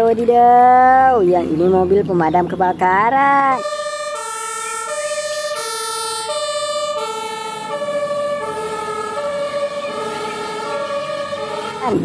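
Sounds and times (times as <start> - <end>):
two-tone fire engine siren: 3.5 - 12.0.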